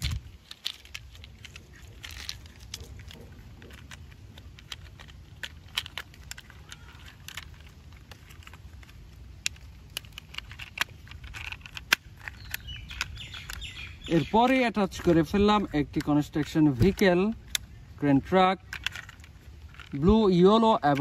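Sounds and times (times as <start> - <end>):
plastic toy parts clicking: 0.0 - 21.0.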